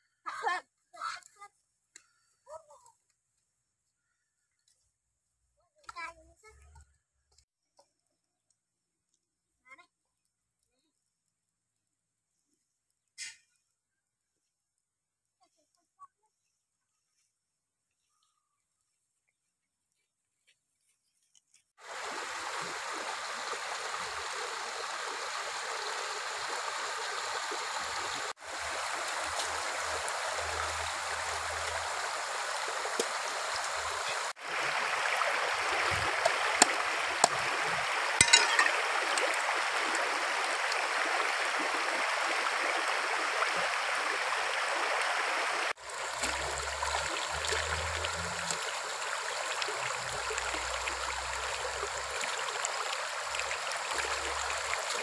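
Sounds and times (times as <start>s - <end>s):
rocky stream flowing: 21.8s - 55.0s.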